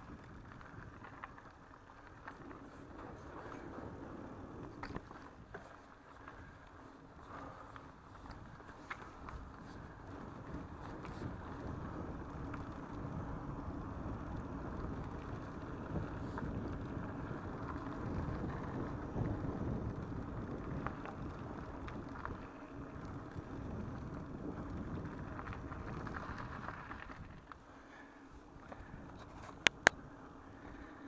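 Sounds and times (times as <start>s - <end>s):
bike tyres rumbling on gravel: 0.0s - 31.0s
wind buffeting microphone: 8.0s - 27.5s.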